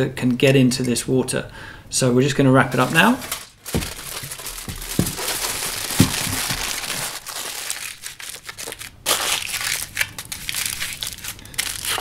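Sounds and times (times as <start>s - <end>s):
aluminium foil crinkling: 2.8s - 12.0s
soft knocks: 5.9s - 6.6s.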